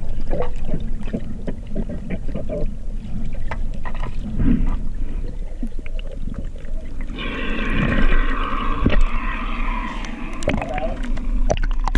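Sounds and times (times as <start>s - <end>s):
muffled underwater rush: 0.0s - 11.9s
water splashing: 0.0s - 11.9s
bubbles hissing: 4.2s - 11.9s.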